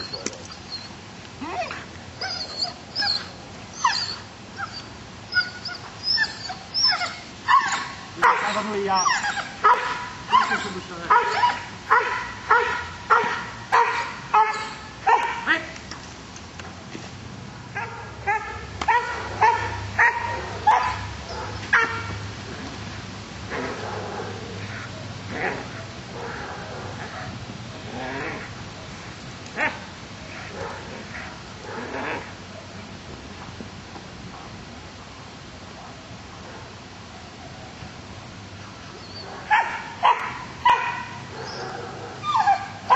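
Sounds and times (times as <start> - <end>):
dog whining and yelping: 0.0 - 15.7, 39.0 - 42.9
dog barking: 7.6 - 8.8, 9.6 - 15.5, 17.8 - 22.0, 39.2 - 42.9.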